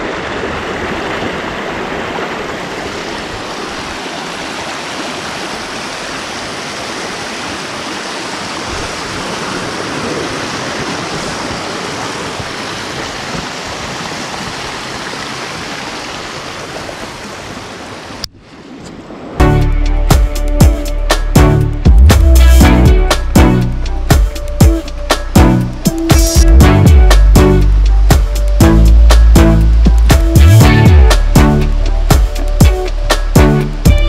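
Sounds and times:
stream rushing over rocks: 0.0 - 18.3.

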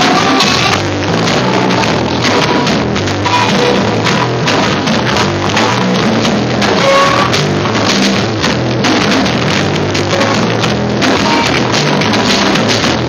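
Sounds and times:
drum kit beating: 0.0 - 13.0
electric guitar: 0.0 - 13.0
rock band playing loudly: 0.0 - 13.0.

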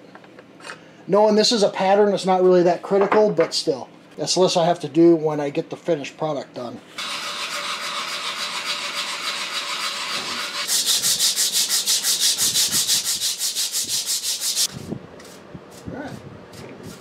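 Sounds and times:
abrasive strip rasping back and forth: 7.0 - 14.7
sanding block scratching wood: 7.0 - 15.9.

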